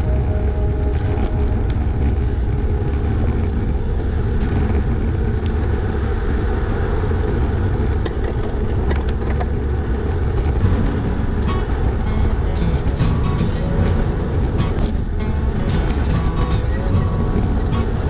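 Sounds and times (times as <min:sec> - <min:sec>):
road noise: 0:00.0 - 0:18.0.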